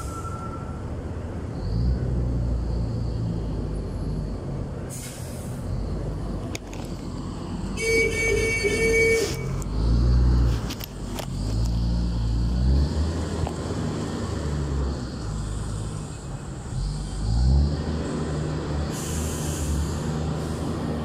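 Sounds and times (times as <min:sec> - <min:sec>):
heavy diesel engine revving: 0:08.2 - 0:21.0.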